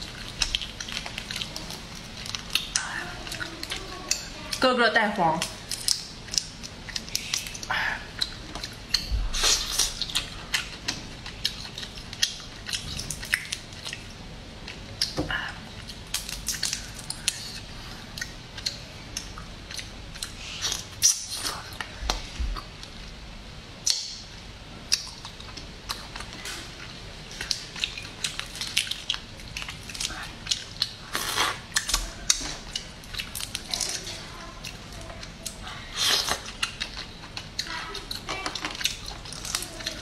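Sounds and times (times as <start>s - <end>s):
crayfish shells cracking: 16.0s - 17.6s, 36.0s - 40.0s.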